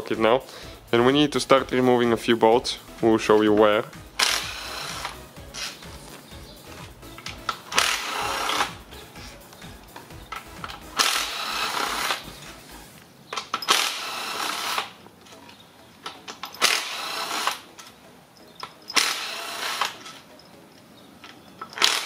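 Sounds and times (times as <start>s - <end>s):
bolts clicking: 3.3s - 12.4s, 13.3s - 22.0s
cordless impact wrench bursts: 4.2s - 5.8s, 7.2s - 8.8s, 10.3s - 12.3s, 13.5s - 15.0s, 16.5s - 17.7s, 18.9s - 20.2s, 21.7s - 22.0s.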